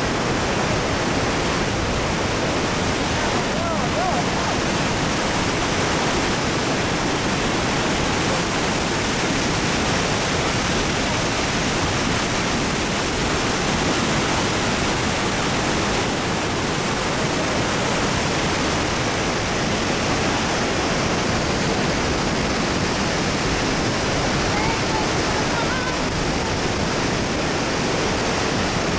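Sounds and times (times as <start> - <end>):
waterfall roaring: 0.0 - 28.9.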